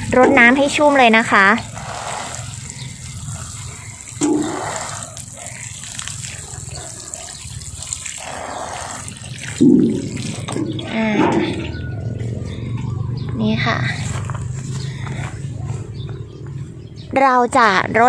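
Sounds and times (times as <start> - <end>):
water pouring onto soil: 0.0 - 11.6.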